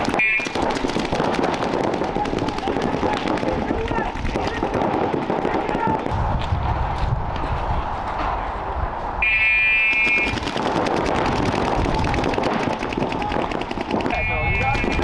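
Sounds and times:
paintball markers firing: 0:00.0 - 0:06.1, 0:09.9 - 0:15.0.

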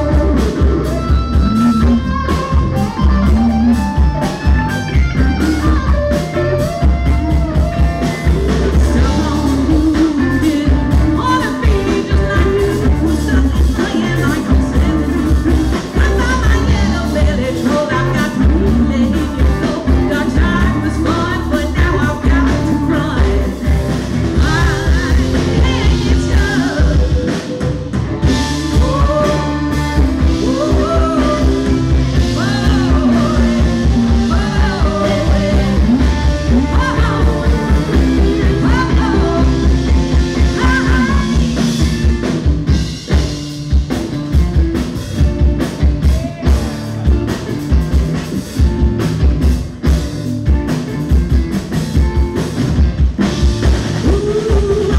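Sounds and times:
drum kit: 0:00.0 - 0:54.9
electric guitars: 0:00.0 - 0:54.9
women singing: 0:08.7 - 0:23.7, 0:24.4 - 0:27.3, 0:28.2 - 0:41.7, 0:54.0 - 0:54.9.

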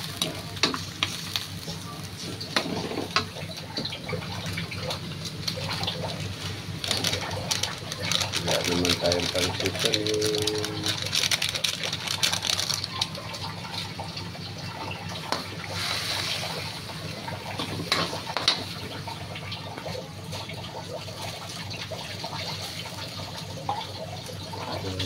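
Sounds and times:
water pouring into sauce: 0:06.8 - 0:16.7.

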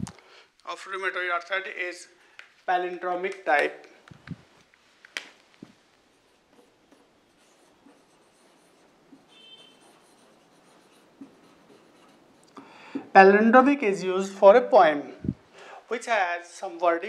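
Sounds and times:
marker pen scratching on whiteboard: 0:06.0 - 0:12.5
marker squeak: 0:06.6 - 0:12.2.

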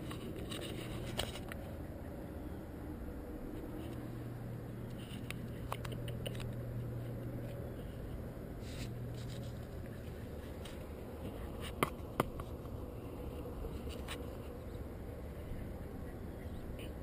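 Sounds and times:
puppy claws scratching on patio: 0:00.0 - 0:01.7, 0:04.8 - 0:14.7
steady low hum: 0:00.0 - 0:17.0.

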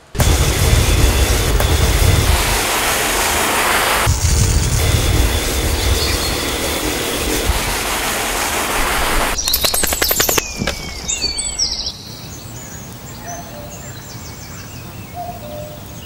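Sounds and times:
water spray hissing: 0:00.0 - 0:11.7
birds chirping: 0:05.3 - 0:08.0, 0:09.0 - 0:15.7
wet dog shaking off: 0:09.2 - 0:11.7.

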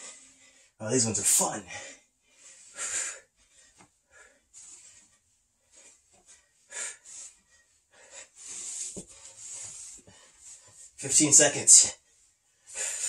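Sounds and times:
man breathing hard: 0:00.0 - 0:00.8, 0:01.7 - 0:10.8, 0:12.6 - 0:13.0.

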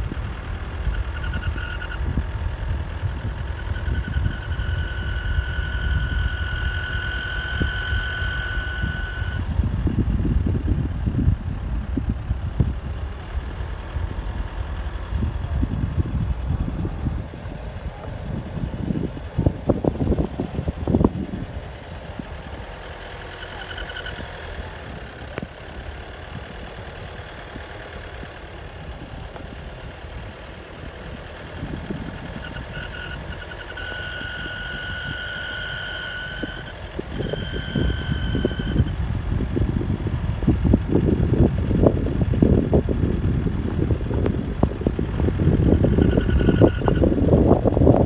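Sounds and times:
high steady tone: 0:00.0 - 0:09.6, 0:19.6 - 0:39.1, 0:45.4 - 0:47.2
low outdoor rumble: 0:00.0 - 0:48.0.

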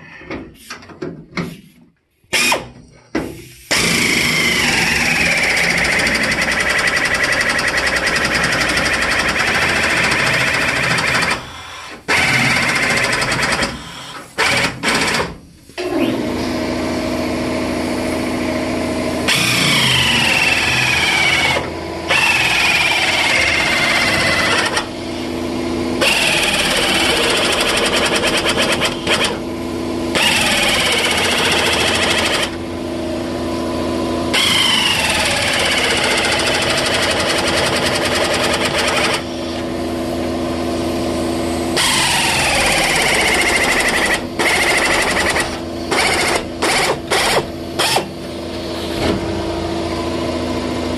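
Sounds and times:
power tool cutting steel: 0:34.3 - 0:39.4, 0:41.7 - 0:48.2.

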